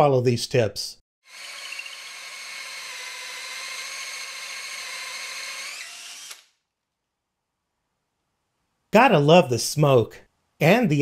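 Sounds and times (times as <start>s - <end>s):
drill motor whine: 1.3s - 6.6s.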